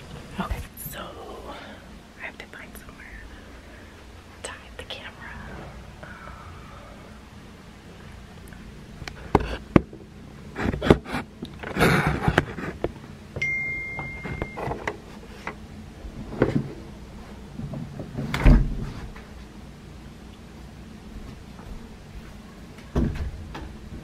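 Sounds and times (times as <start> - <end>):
steady high tone: 13.4 - 14.8.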